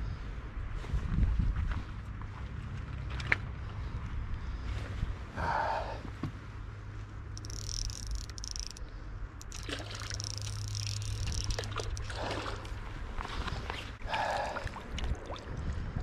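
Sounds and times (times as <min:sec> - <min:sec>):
fish thrashing and splashing: 0:07.4 - 0:08.8, 0:09.4 - 0:15.5
fishing reel drag ticking: 0:07.4 - 0:12.2.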